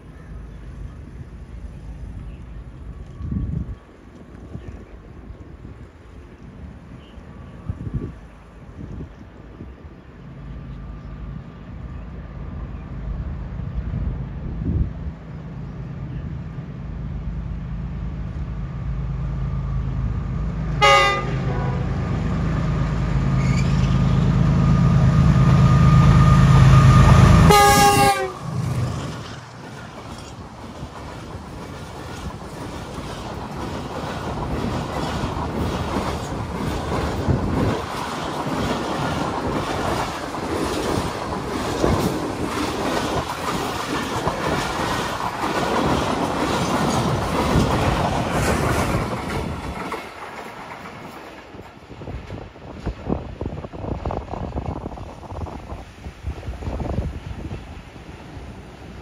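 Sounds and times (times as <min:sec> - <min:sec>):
diesel locomotive engine: 0:00.0 - 0:59.0
train horn blasts: 0:20.8 - 0:22.0, 0:24.6 - 0:28.6
wheels clacking over rail joints: 0:27.5 - 0:53.0.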